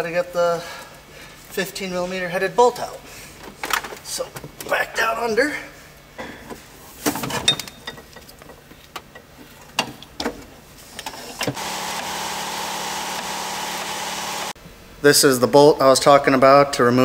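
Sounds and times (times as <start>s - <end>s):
steady even whir: 11.5s - 14.6s.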